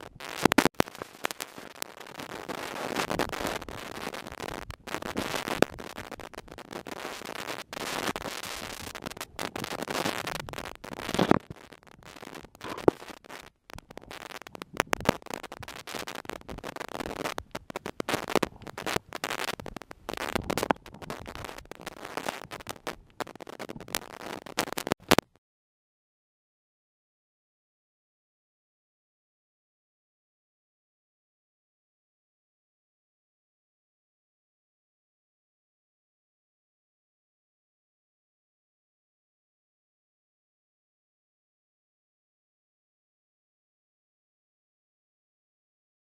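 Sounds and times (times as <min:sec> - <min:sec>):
underwater crackle and swish: 0:00.0 - 0:25.3.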